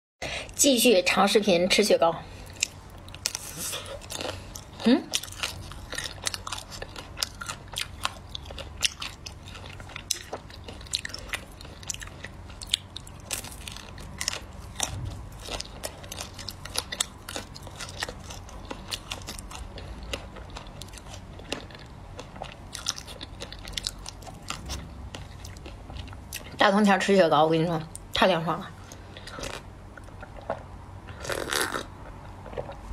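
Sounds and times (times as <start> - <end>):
chewing: 2.4 - 26.6
ice cream bar crunching: 2.5 - 26.4, 29.3 - 32.8.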